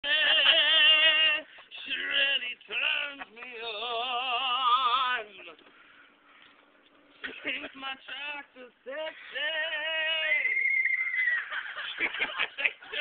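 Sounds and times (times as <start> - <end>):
person singing operatically: 0.0 - 5.6.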